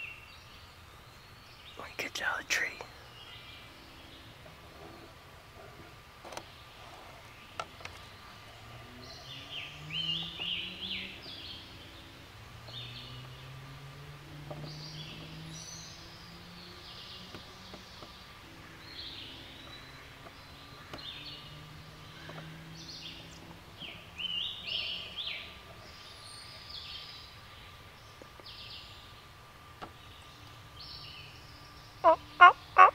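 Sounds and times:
songbirds singing: 0.0 - 32.9.

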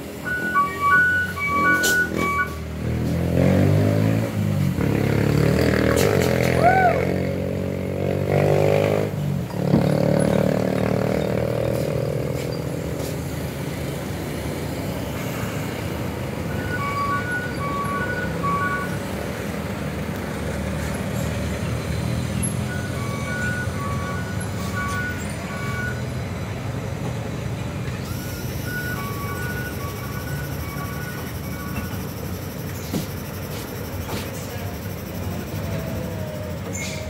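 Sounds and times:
engines of climbing traffic: 0.0 - 37.0
two-tone electronic beeping alarm: 0.1 - 2.7, 16.4 - 19.0, 22.6 - 26.2, 28.1 - 32.8.

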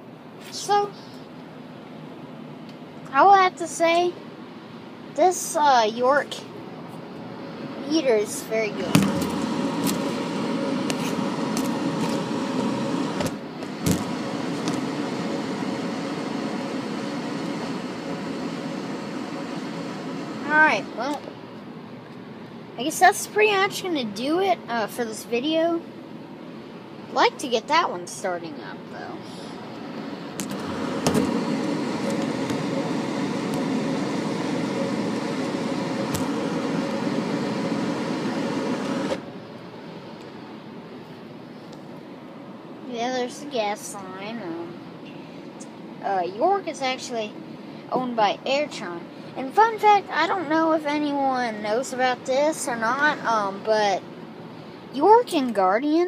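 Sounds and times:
faint hum: 0.0 - 56.0
furnace air rushing: 3.2 - 21.5, 28.3 - 40.2.

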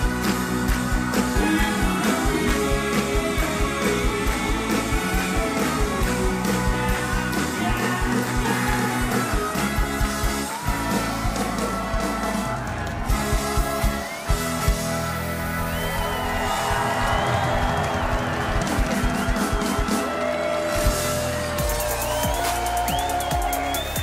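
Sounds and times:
pop-rock band music: 0.0 - 24.0
steady drum beat: 0.0 - 24.0
person singing: 1.2 - 9.8.

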